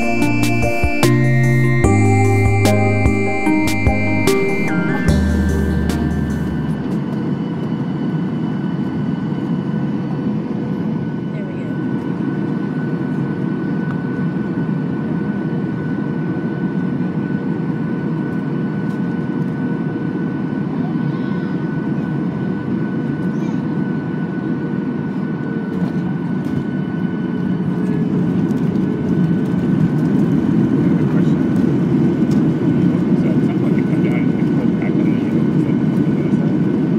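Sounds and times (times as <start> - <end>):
thin steady whine: 0.0 - 23.2
rush of air and jet engine noise: 0.0 - 36.9.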